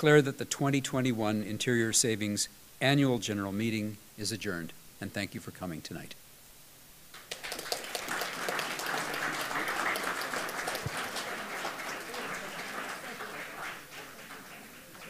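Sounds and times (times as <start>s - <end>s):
people applauding: 7.2s - 15.0s.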